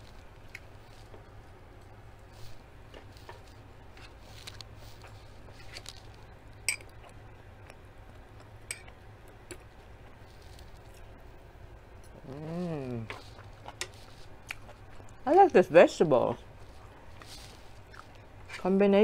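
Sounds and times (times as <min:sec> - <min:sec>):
chewing and mouth smacks: 0:02.8 - 0:11.1, 0:12.9 - 0:15.6, 0:16.3 - 0:18.6.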